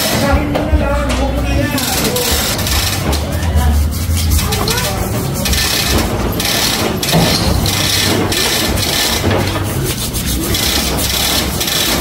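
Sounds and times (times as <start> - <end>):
chain hoist chain rattling: 4.2 - 12.0.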